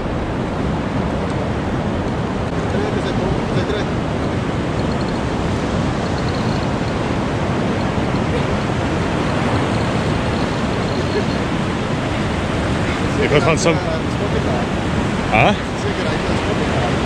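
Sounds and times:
shallow surf: 0.0 - 17.0
wind: 0.0 - 17.0.

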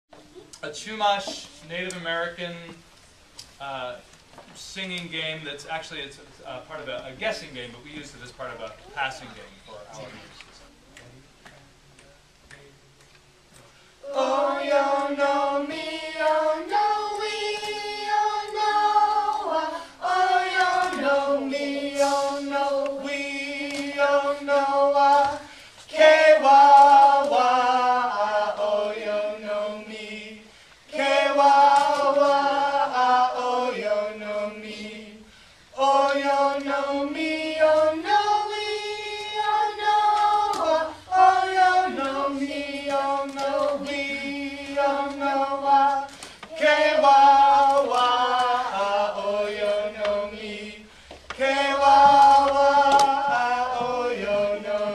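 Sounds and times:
children and man singing in unison: 13.8 - 54.9.

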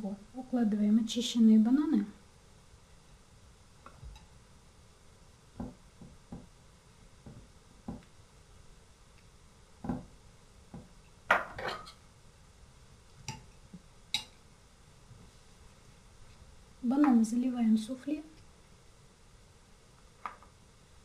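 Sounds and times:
dishes knocking and clinking: 9.8 - 10.1, 10.7 - 12.0.

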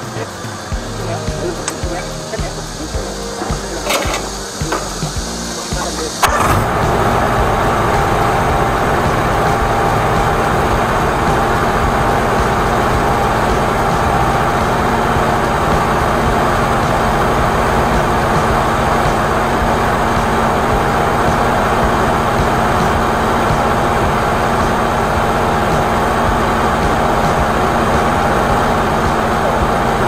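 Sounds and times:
machine engine starting and running: 0.0 - 30.0.

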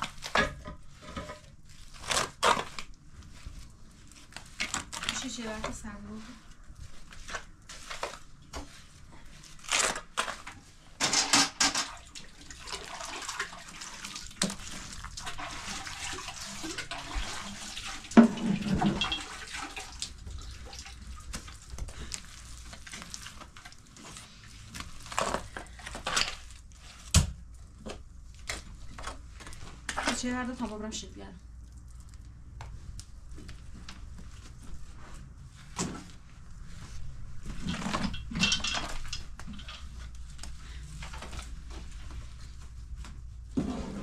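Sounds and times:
water running: 11.8 - 21.8.

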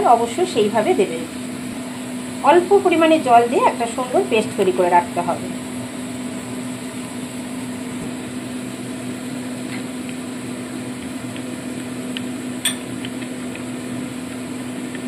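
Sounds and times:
steady mechanical hum: 0.0 - 15.0
spoon clinking against glass bowl: 12.6 - 12.9.

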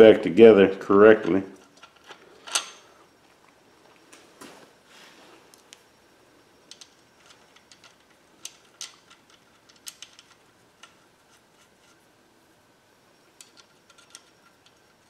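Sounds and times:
metal nuts clicking: 6.7 - 11.0.

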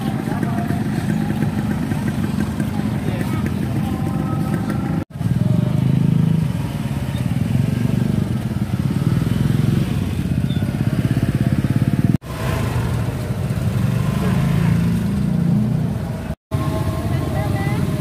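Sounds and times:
faint crowd voices: 0.0 - 9.6
motorcycle engines running: 0.0 - 18.0.

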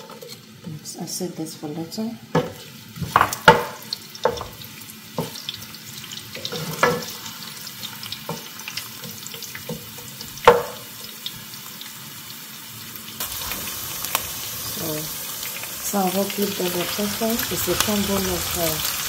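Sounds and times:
onions sizzling in oil: 0.0 - 19.0
spatula knocking against pan: 10.4 - 10.8.

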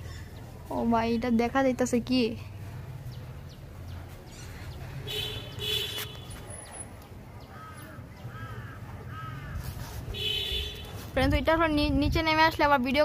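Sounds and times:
crow cawing: 7.5 - 9.6.

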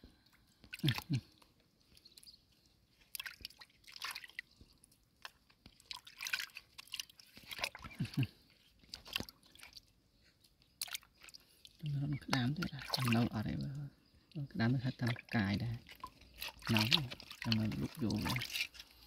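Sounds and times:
hands splashing in muddy water: 0.6 - 2.3, 2.9 - 13.9, 14.7 - 19.0.

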